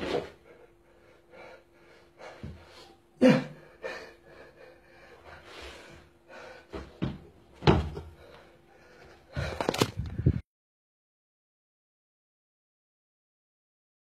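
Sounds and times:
feet thudding on rug-covered floor: 6.7s - 8.2s.

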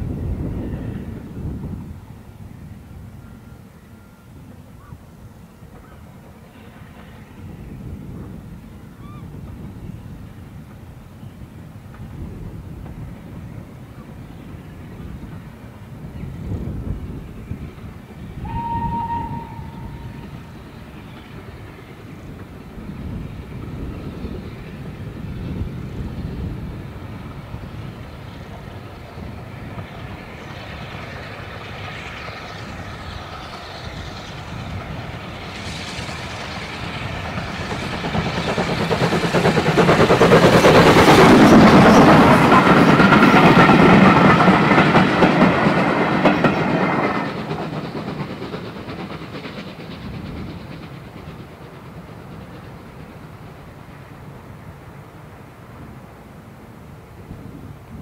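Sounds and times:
steam locomotive exhaust beats: 0.0s - 58.0s
train wheels clattering: 18.1s - 54.5s.

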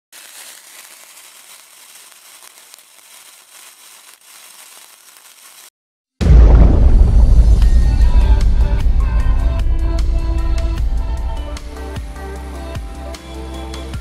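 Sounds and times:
lit fuse fizzing and crackling: 0.0s - 5.7s
loud bass-heavy music: 6.2s - 14.0s.

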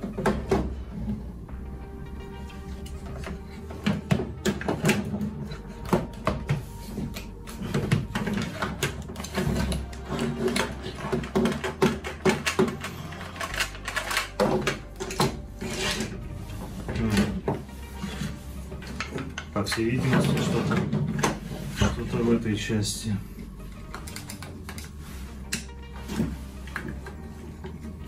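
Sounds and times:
hard plastic clicking and rattling: 2.8s - 16.2s, 23.8s - 24.9s.

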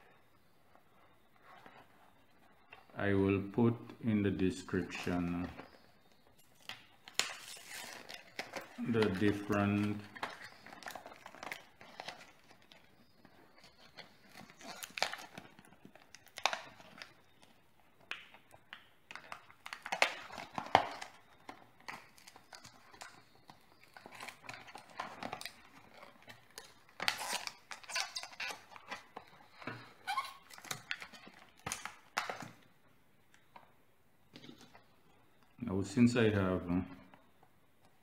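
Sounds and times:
plastic packaging crackling: 4.0s - 32.7s.

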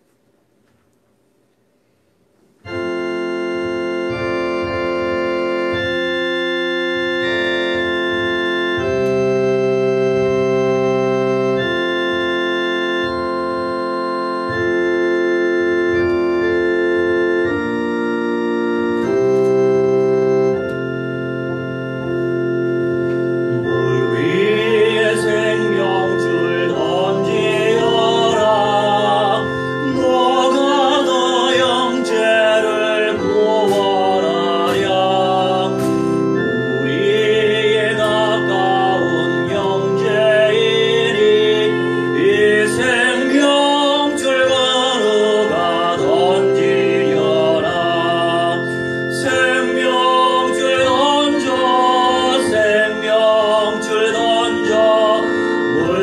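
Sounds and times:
electronic organ playing hymn: 0.0s - 1.5s, 2.2s - 56.0s
man singing: 23.5s - 56.0s.

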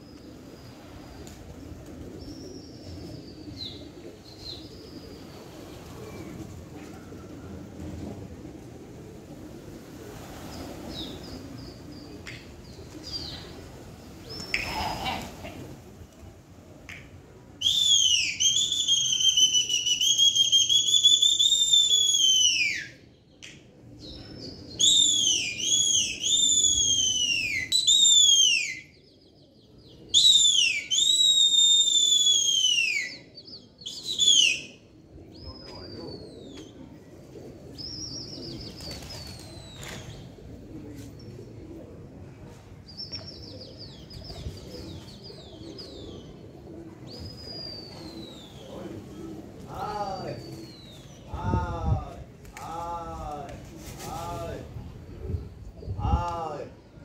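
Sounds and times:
shrill human whistling: 17.6s - 22.9s, 24.8s - 28.8s, 30.2s - 33.2s.

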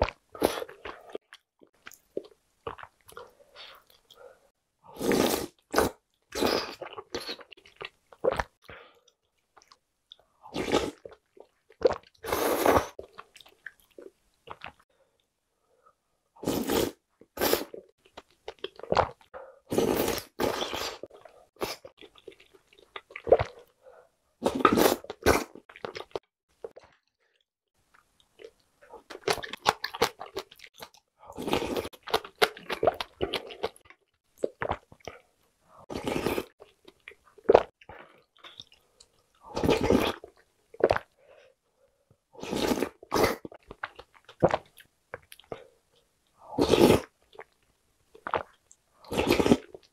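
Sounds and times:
person slurping noodles: 4.9s - 7.5s, 10.5s - 11.1s, 11.8s - 13.0s, 16.4s - 17.8s, 18.9s - 21.9s, 24.4s - 26.2s, 31.3s - 32.0s, 35.8s - 36.6s, 39.4s - 41.1s, 42.4s - 43.6s, 46.5s - 47.1s, 48.3s - 49.8s
person chewing: 28.4s - 35.2s, 48.2s - 49.9s.

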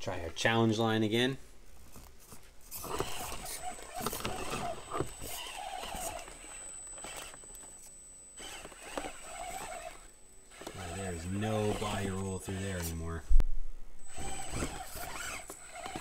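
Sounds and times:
faint high-pitched whine: 0.0s - 16.0s
toy car motor whining: 2.7s - 13.2s, 14.0s - 16.0s.

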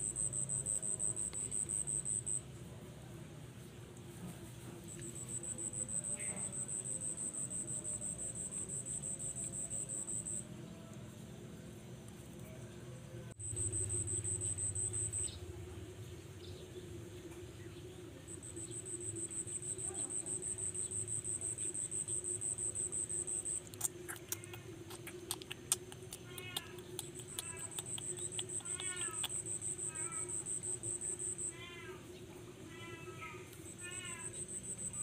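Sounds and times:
insect trilling buzz: 18.3s - 31.9s, 33.6s - 35.0s
sharp clicks: 23.6s - 29.6s.

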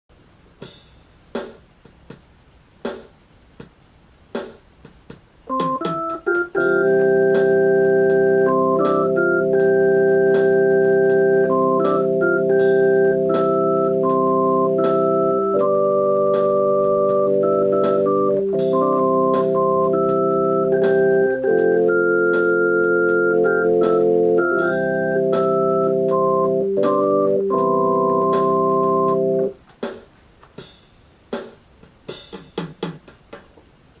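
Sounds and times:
electronic organ chords and melody: 5.5s - 29.6s.

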